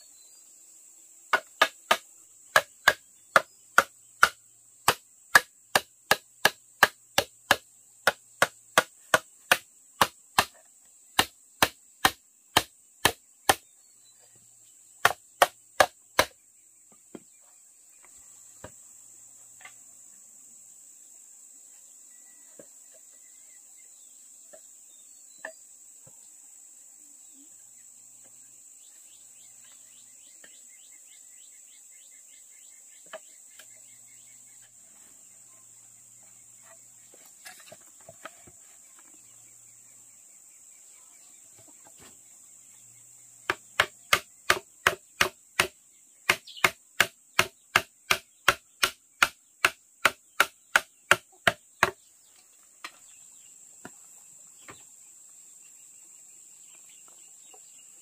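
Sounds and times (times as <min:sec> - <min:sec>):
insects chirping: 0:00.0 - 0:58.0
sharp chopping strokes: 0:11.2 - 0:13.6, 0:15.0 - 0:16.3, 0:43.5 - 0:45.7, 0:46.3 - 0:52.0.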